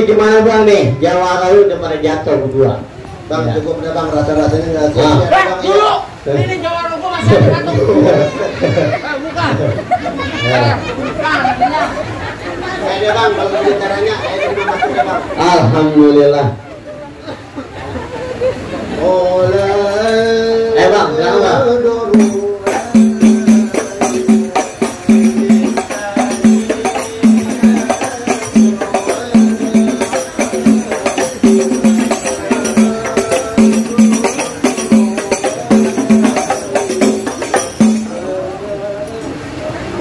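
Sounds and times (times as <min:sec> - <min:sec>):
drum strokes: 0:22.1 - 0:38.4
tambourine jingles: 0:22.2 - 0:38.4.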